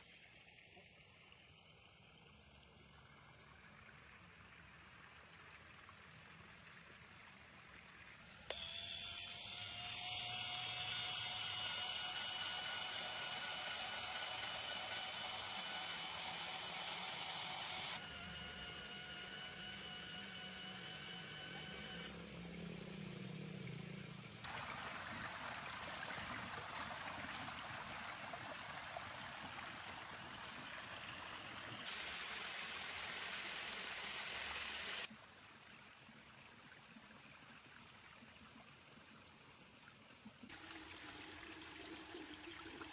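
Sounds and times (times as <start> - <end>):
water pump whine: 0.0 - 35.1, 40.5 - 42.9
water spraying and splashing: 22.2 - 35.1.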